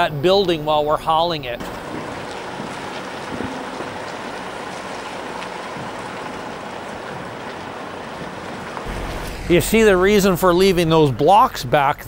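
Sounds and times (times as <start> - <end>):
truck engine running low: 0.0 - 11.1
rain hissing on concrete: 1.6 - 9.5.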